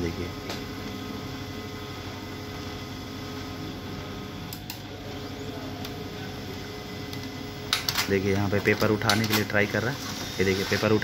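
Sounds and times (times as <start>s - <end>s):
printer motor whirring: 0.0s - 11.0s
printer paper pickup clicks: 7.7s - 9.7s.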